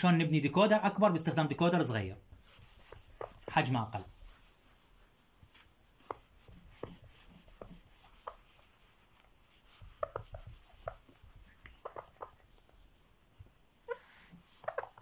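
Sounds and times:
eraser squeaking on whiteboard: 2.3 - 13.0, 13.8 - 15.0.

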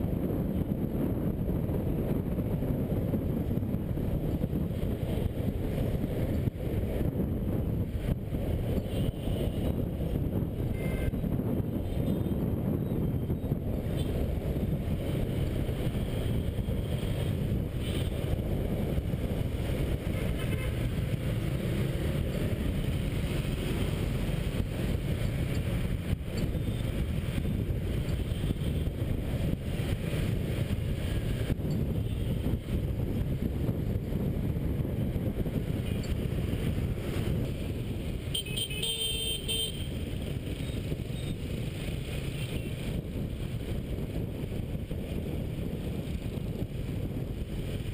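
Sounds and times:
scooter and car traffic: 0.0 - 47.9
wind rumbling on microphone: 0.0 - 47.9
vehicle horn beep: 10.7 - 11.2, 38.3 - 39.9.

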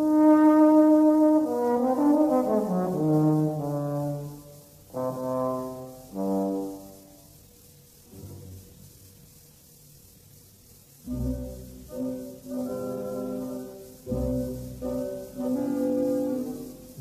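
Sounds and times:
solo trombone: 0.0 - 7.5, 11.0 - 17.0.

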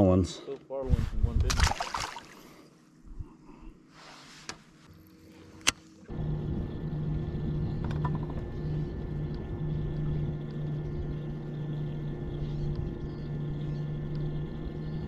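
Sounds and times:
electric trolling motor hum: 5.0 - 15.0.

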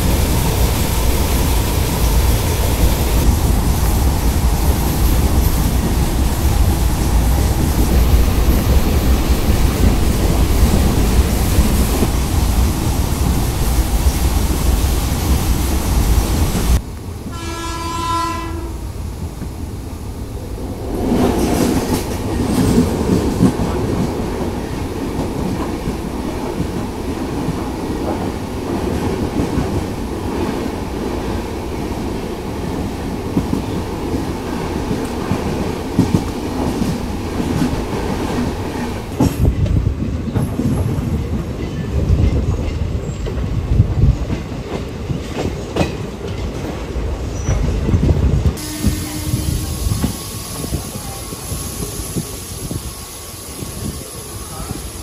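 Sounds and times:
express train rumbling past: 0.0 - 55.0
train horn: 17.3 - 18.9, 48.6 - 49.9
train wheels clattering: 20.8 - 52.9.

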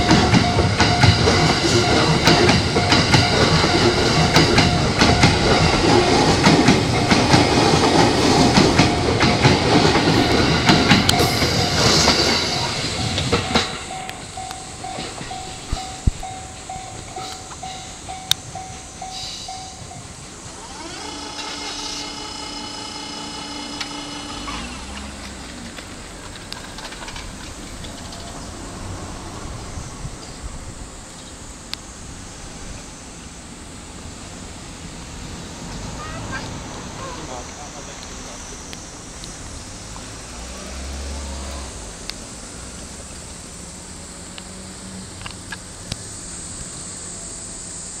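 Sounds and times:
level crossing alarm bell: 0.0 - 7.4, 8.2 - 25.0
low vehicle rumble: 0.0 - 32.9
cicadas droning: 0.0 - 48.0
electric train whine: 0.0 - 48.0.

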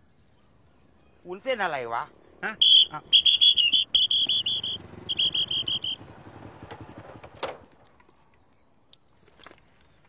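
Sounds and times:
motorcycle engine running low: 2.1 - 7.8
pea whistle trills: 2.4 - 6.1.

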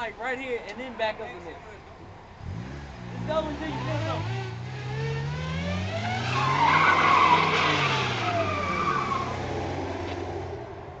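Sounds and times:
car engine revving hard: 2.4 - 10.6
tyres squealing: 6.2 - 9.8.

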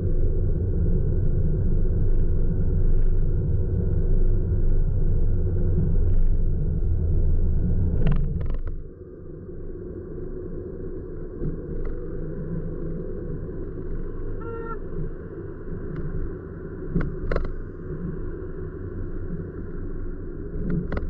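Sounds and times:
car engine and tyres rumbling: 0.0 - 8.8.

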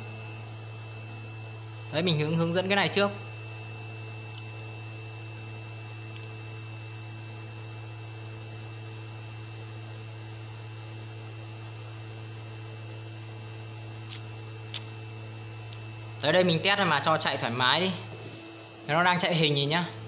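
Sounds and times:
machine electrical hum: 0.0 - 20.0.

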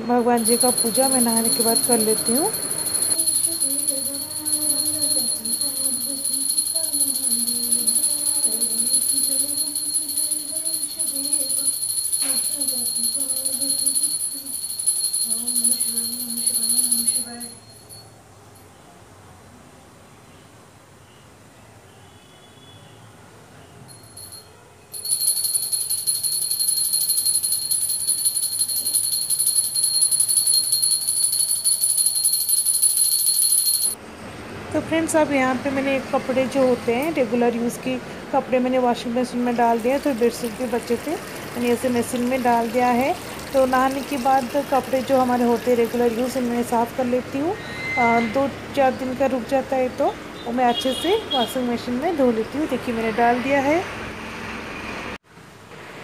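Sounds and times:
hand bell jingling: 0.4 - 18.1, 23.9 - 34.0.

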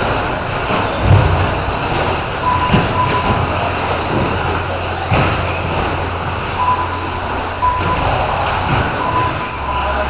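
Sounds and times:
rc car motors and tyres: 0.0 - 10.0
short steady beeps: 2.4 - 3.4, 6.6 - 10.0.

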